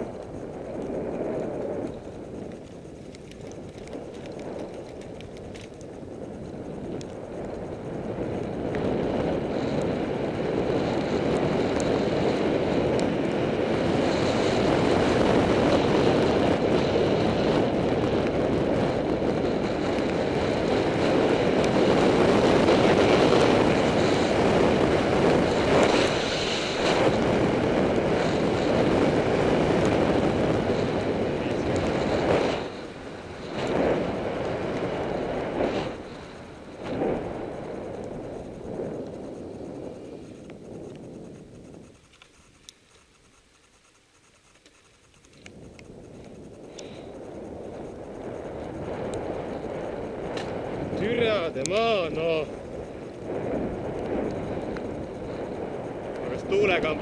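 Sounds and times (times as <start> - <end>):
wind noise on microphone: 0.0 - 57.0.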